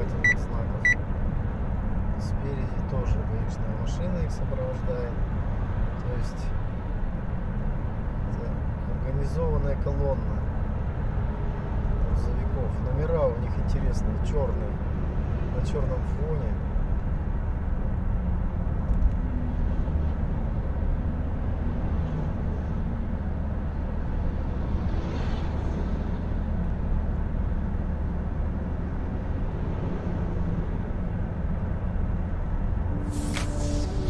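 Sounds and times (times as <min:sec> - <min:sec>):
car road and engine drone: 0:00.0 - 0:34.0
rushing noise: 0:32.8 - 0:34.0.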